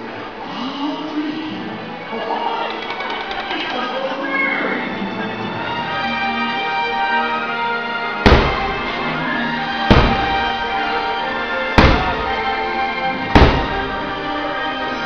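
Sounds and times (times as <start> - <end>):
soundtrack music: 1.2 - 15.0
firework booms: 8.2 - 9.1, 9.8 - 11.0, 11.7 - 14.4.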